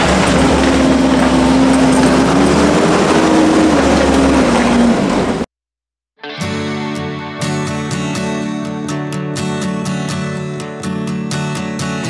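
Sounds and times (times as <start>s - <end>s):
acoustic guitar music: 0.0s - 5.5s, 6.2s - 12.0s
engine running loud: 0.0s - 5.5s.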